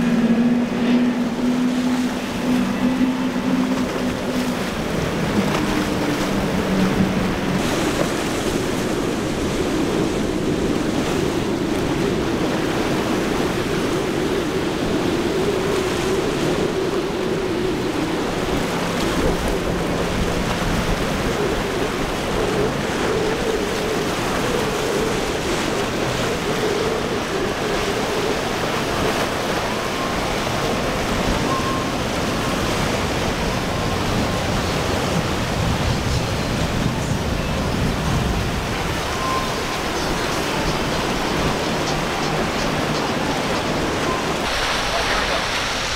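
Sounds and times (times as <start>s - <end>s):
outboard engines droning: 0.0s - 45.9s
wind on microphone: 0.0s - 45.9s
spray and surf hiss: 44.4s - 45.9s.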